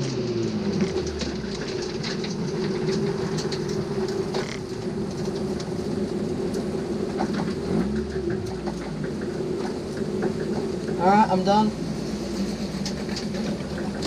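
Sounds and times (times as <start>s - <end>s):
race car engine from inside: 0.0s - 14.0s.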